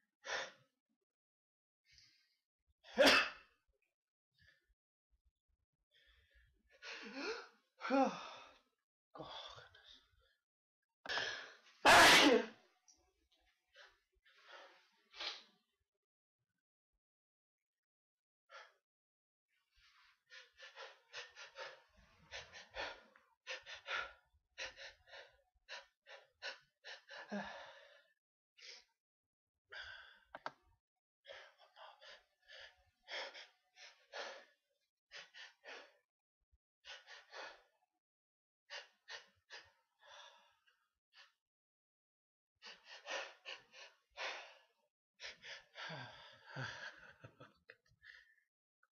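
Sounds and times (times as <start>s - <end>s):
person gasping before sneeze: 11.9s - 12.5s.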